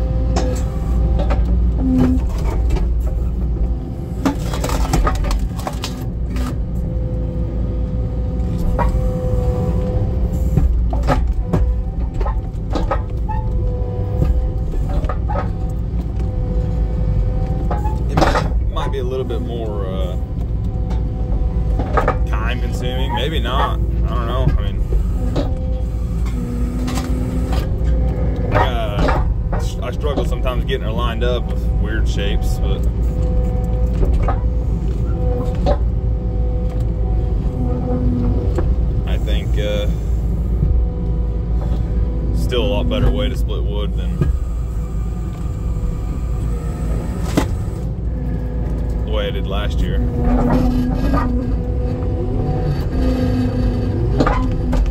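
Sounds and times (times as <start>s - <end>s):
engine whine: 0.0s - 54.9s
skid steer engine running: 0.0s - 54.9s
metal knocks and clanks: 17.4s - 36.1s.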